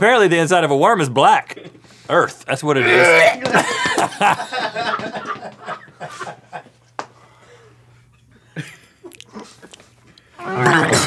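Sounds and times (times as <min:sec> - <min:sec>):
chewing mouth noises: 0:09.0 - 0:10.2.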